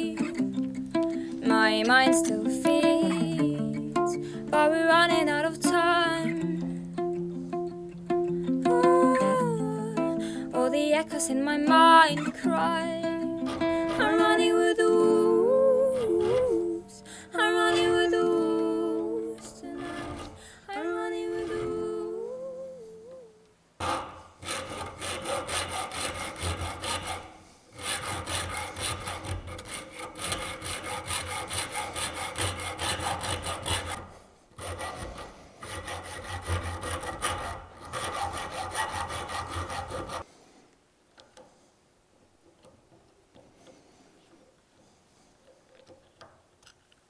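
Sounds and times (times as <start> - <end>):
hand file scraping steel: 13.1 - 14.6, 15.8 - 16.8, 19.6 - 20.4, 21.2 - 22.1, 23.8 - 40.3
song with singing: 13.8 - 23.5.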